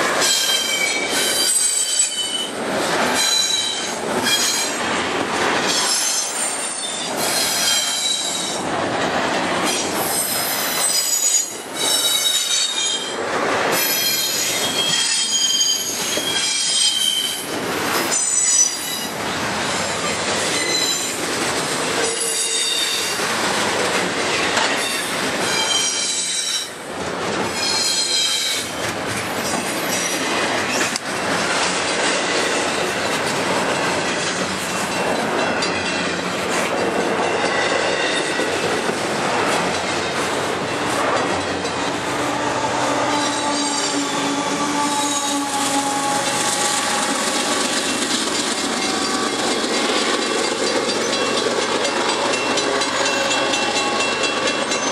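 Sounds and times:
train wheels rolling on rails: 0.0 - 54.9
high-pitched wheel squeal: 10.0 - 13.1, 13.8 - 17.4, 20.5 - 21.2, 24.8 - 26.7, 42.2 - 47.8.

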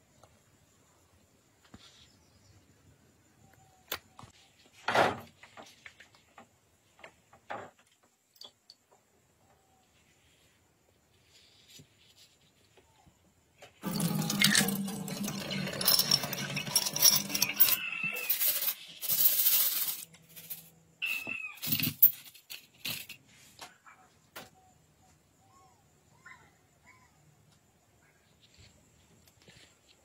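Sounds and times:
water running into steel sink: 13.8 - 17.7
metallic clinks of small parts: 13.9 - 20.8, 21.6 - 23.2.

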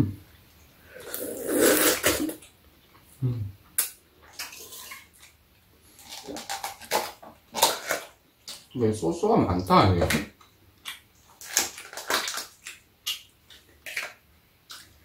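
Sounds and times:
noodles slurped loudly: 1.0 - 2.4
eating noises: 10.3 - 15.0.

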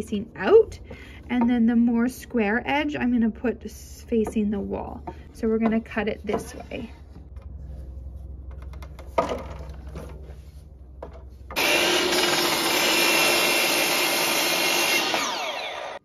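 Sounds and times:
miter saw cutting wood: 11.6 - 16.0.

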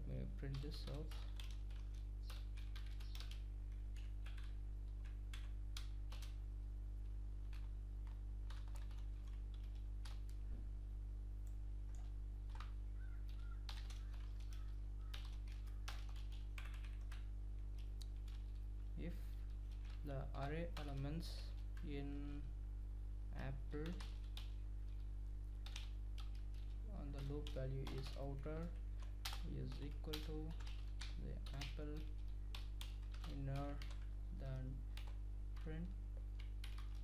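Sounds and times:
low electrical hum: 0.0 - 37.0
typing on computer keyboard: 0.5 - 6.4, 7.5 - 10.4, 11.9 - 18.6, 23.8 - 25.0, 25.6 - 34.1, 35.0 - 37.0.

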